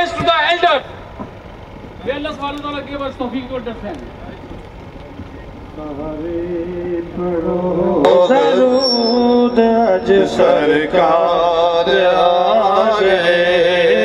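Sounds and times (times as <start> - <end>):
man singing through loudspeaker: 5.8 - 14.0.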